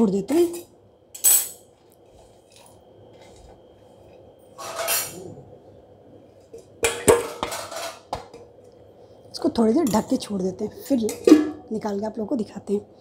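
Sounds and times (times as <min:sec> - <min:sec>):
metal plate scraping: 0:04.6 - 0:05.2
metal plate clanking on pot: 0:06.8 - 0:08.4, 0:11.1 - 0:11.7.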